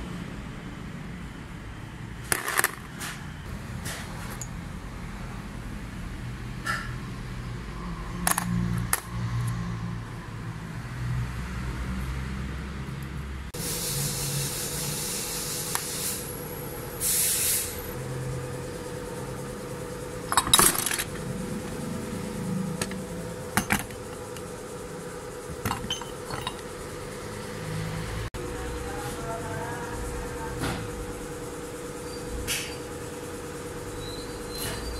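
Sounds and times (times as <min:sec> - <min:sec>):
small metal parts clinking: 0:20.3 - 0:21.3, 0:23.6 - 0:24.4, 0:25.6 - 0:26.8.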